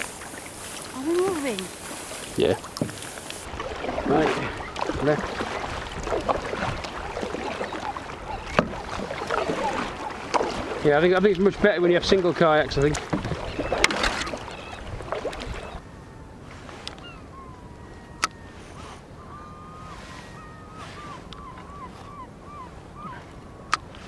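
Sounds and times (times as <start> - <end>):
paddle strokes splashing water: 0.0 - 15.8, 18.4 - 24.0.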